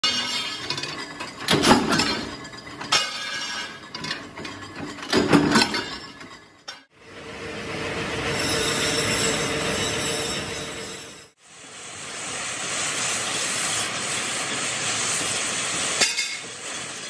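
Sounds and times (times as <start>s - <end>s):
metal clanks and knocks: 0.0s - 6.9s.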